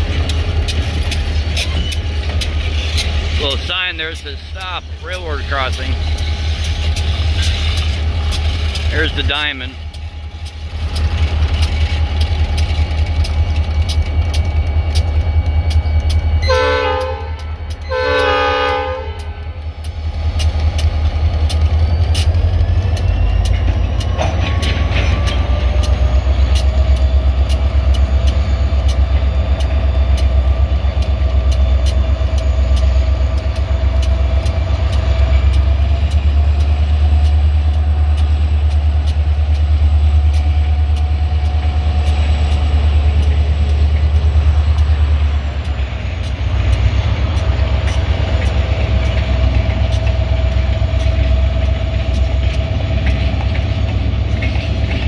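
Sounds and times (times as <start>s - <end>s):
diesel locomotives rumbling: 0.0s - 55.0s
wheels clicking over rail joints: 0.0s - 55.0s
locomotive horn blasts: 16.4s - 19.3s.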